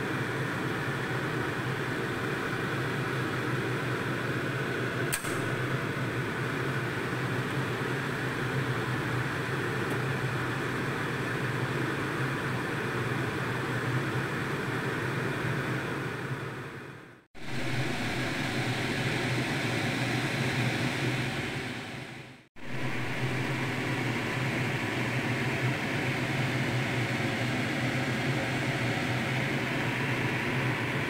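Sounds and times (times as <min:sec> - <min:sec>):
short click: 0:05.1 - 0:05.6.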